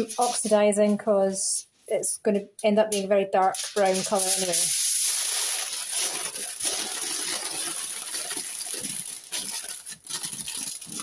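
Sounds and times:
aluminium foil crinkling: 0.0s - 0.7s, 2.9s - 11.0s.

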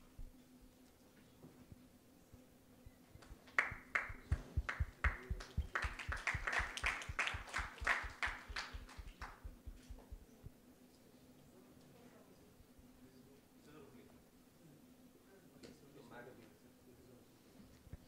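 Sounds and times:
faint steady hum: 0.0s - 15.5s
audience applause: 3.5s - 9.4s.

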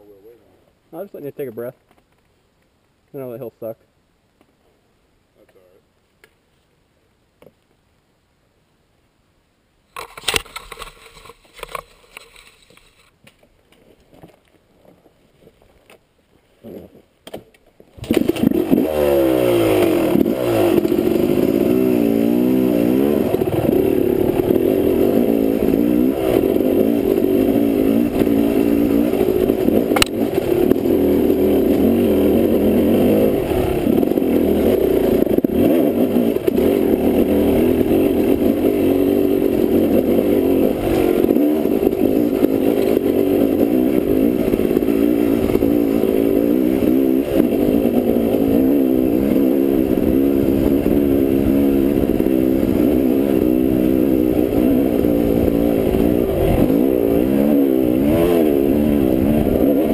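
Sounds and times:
dirt bike engine revving: 18.0s - 59.9s.

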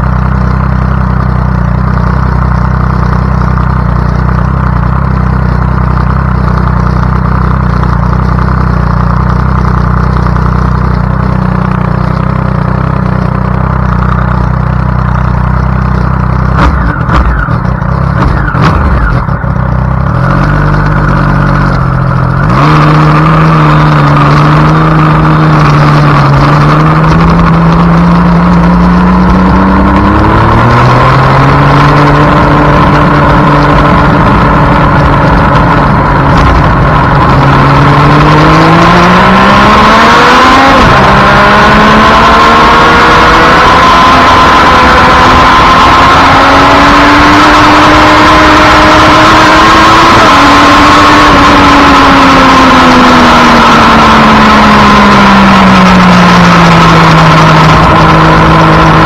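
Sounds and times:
motorcycle engine running hard: 0.0s - 59.0s.

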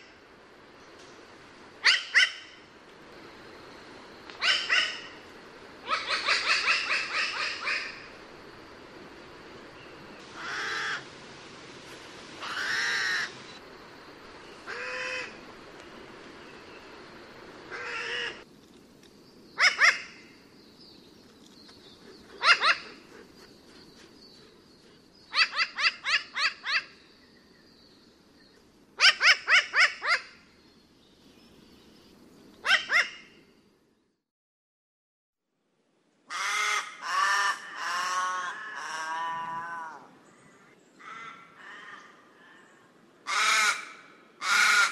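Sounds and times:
crow calling: 5.8s - 8.1s, 10.4s - 11.0s, 12.4s - 13.4s, 14.7s - 15.4s, 17.7s - 18.4s, 36.3s - 40.1s, 41.0s - 42.6s, 43.2s - 44.9s.

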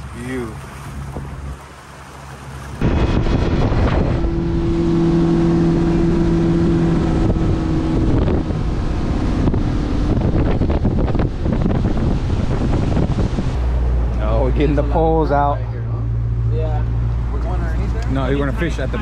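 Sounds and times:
outboard motor engine hum: 0.0s - 19.0s
water rushing past hull: 0.0s - 19.0s
wind buffeting microphone: 2.7s - 15.2s.

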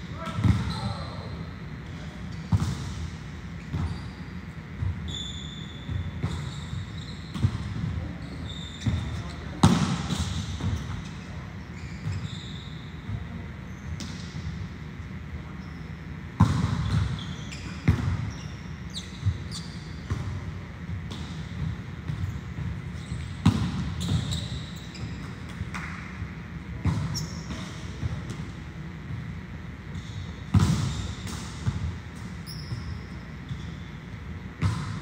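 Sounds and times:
volleyballs being struck: 9.6s - 11.0s, 30.5s - 32.3s.

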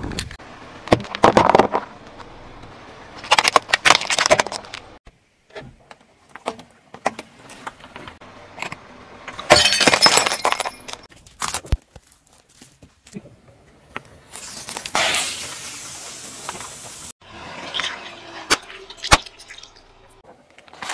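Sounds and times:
objects crushed under car tyre: 0.8s - 2.0s, 3.2s - 5.0s, 9.4s - 12.1s.

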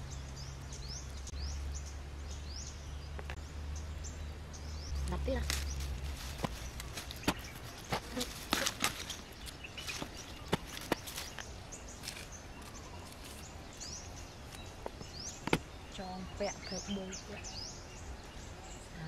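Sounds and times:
plant stems and dry leaves crackling: 4.8s - 17.5s.

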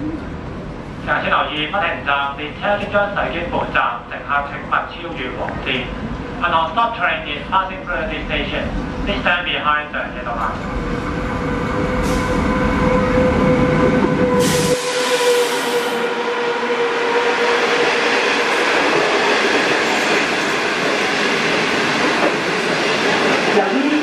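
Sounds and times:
electric locomotive rumble and hum: 1.9s - 24.0s
train wheels rushing on rails: 10.3s - 24.0s.

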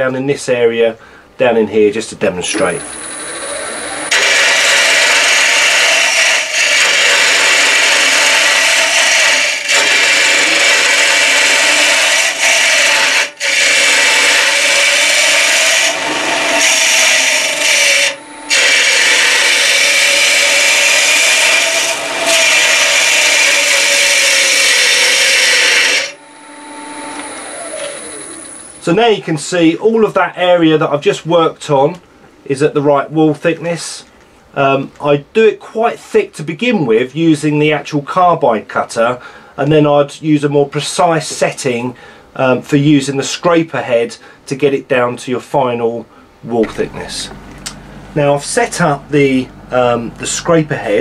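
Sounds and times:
lathe running: 2.5s - 28.8s, 46.6s - 51.0s
cutter scraping wood on lathe: 2.6s - 26.2s.

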